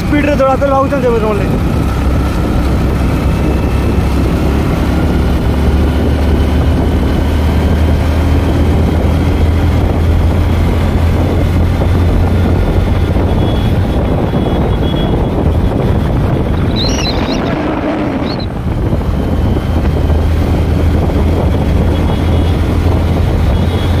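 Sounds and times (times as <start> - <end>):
wind rushing over microphone: 0.0 - 24.0.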